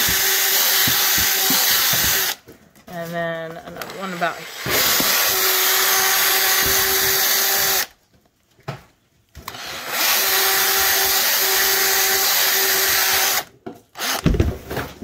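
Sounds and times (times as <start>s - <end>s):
cordless drill boring into tire: 0.0s - 2.4s, 3.9s - 7.9s, 9.5s - 14.3s.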